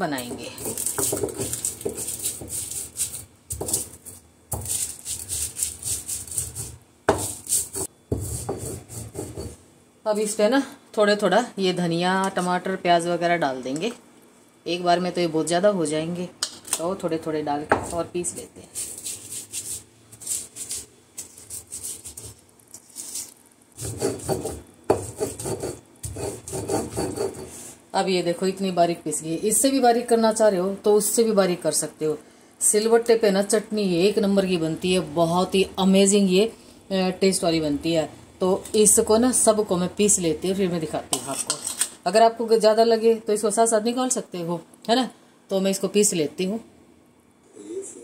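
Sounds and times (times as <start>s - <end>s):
stone grinding spices: 0.2s - 9.6s, 18.8s - 27.6s.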